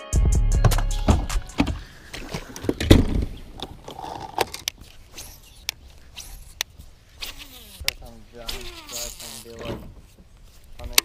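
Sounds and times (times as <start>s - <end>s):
fishing gear clicks and knocks: 1.1s - 11.0s
fly buzzing: 3.9s - 9.8s.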